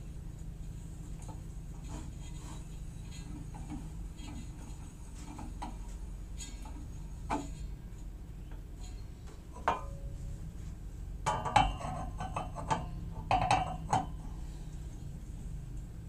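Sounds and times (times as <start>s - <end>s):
metal bowls clinking: 8.9s - 10.2s, 11.2s - 14.2s.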